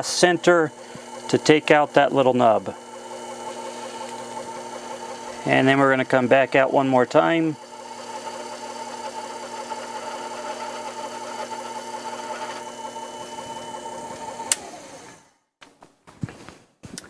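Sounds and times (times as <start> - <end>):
lathe motor whining: 0.0 - 15.4.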